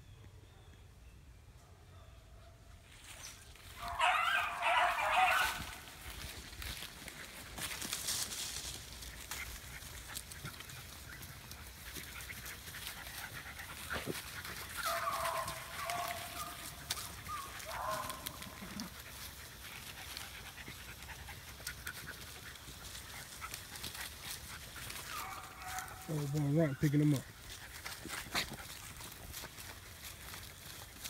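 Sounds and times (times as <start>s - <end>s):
rustling in grass and leaves: 2.8s - 31.0s
dog panting: 9.2s - 25.8s.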